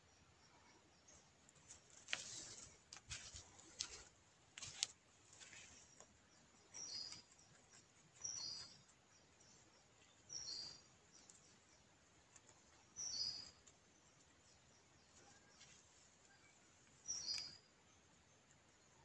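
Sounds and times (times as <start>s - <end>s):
soft clicks and rustles: 1.4s - 9.0s.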